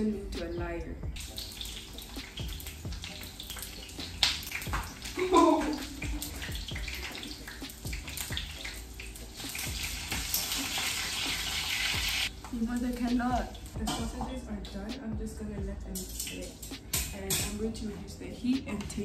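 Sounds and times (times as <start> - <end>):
sausages sizzling in oil: 1.2 - 13.8.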